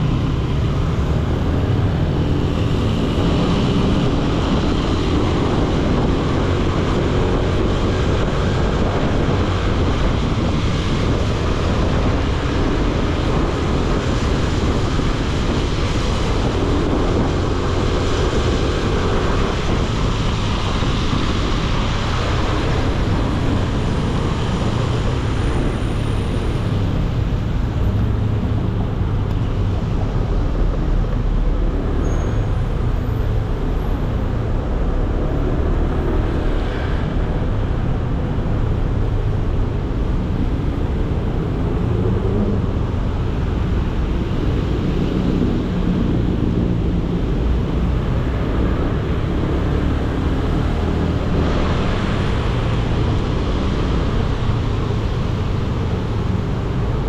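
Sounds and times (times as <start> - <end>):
city traffic noise: 0.0 - 57.0.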